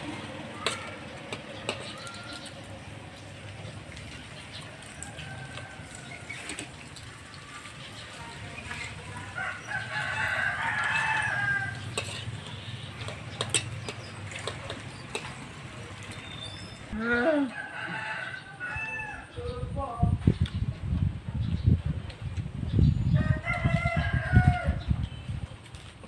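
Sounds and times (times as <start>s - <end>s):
spoons clicking on plates: 0.6s - 2.6s, 10.9s - 16.3s
rooster crowing: 4.9s - 6.4s, 9.3s - 11.9s, 17.4s - 19.3s, 23.2s - 24.8s.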